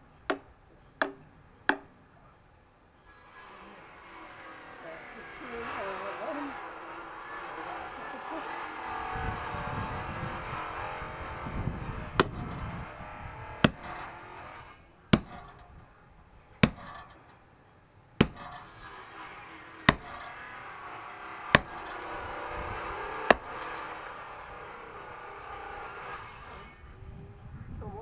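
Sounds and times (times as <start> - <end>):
tool strikes splitting firewood: 0.2 - 2.0, 12.1 - 15.9, 16.6 - 17.3, 18.2 - 26.7.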